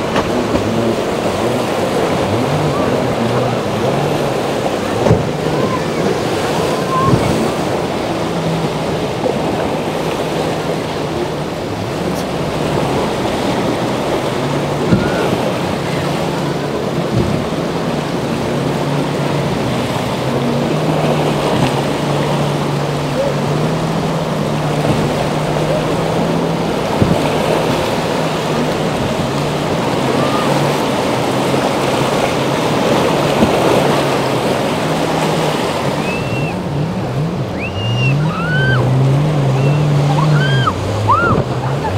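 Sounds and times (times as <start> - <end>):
boat engine drone: 0.0 - 41.9
surf: 0.0 - 41.9.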